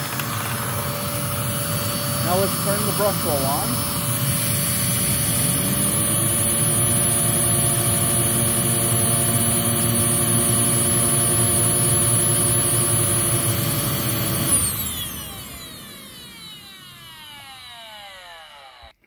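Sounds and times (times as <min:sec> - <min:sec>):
upright vacuum motor hum: 0:00.0 - 0:19.0.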